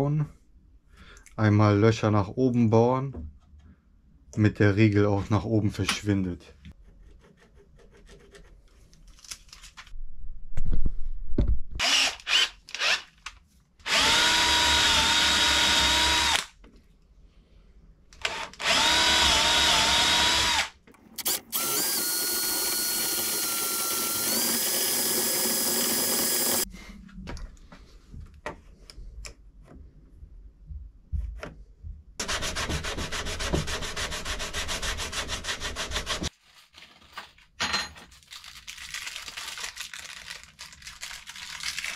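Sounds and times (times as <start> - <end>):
cordless drill whining: 11.8 - 13.1, 13.8 - 16.5, 18.2 - 26.7.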